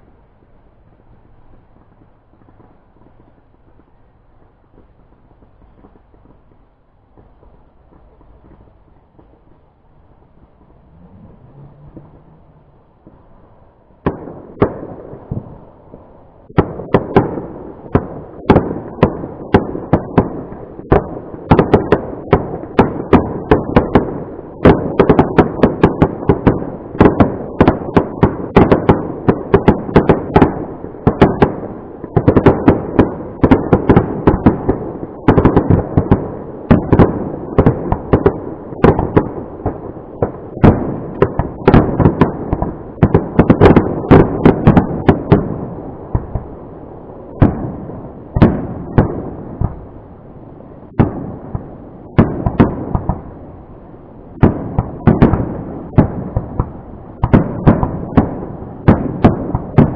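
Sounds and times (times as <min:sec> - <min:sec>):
steady rumble: 0:00.0 - 0:21.5
fireworks bangs: 0:00.0 - 0:59.9.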